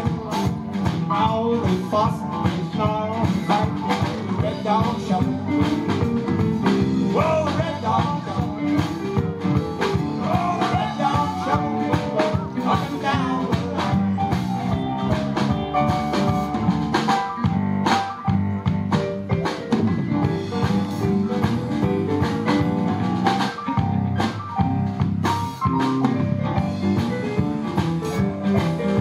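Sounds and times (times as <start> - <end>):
drum kit: 0.0 - 29.0
electric guitar: 0.0 - 29.0
stage piano: 0.0 - 29.0.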